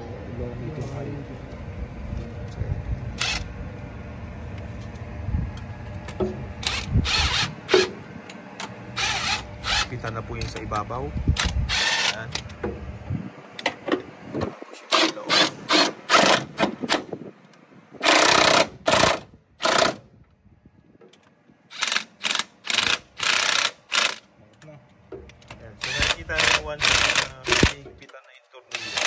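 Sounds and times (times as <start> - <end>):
pneumatic impact wrench bursts: 3.2 - 3.5, 6.6 - 8.0, 8.6 - 10.0, 11.4 - 12.3, 14.9 - 17.1, 18.0 - 20.1, 21.7 - 24.3, 25.8 - 27.8, 28.7 - 29.0.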